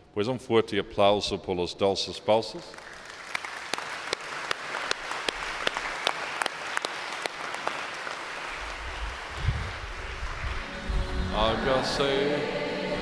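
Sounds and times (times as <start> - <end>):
people applauding: 2.7 - 10.9
single sharp claps: 2.8 - 10.6.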